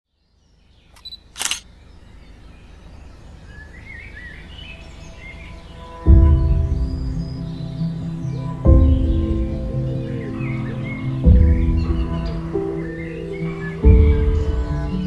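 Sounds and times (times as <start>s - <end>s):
birds chirping: 0.1s - 15.0s
small click: 0.9s - 1.7s
music with deep bass: 6.1s - 15.0s.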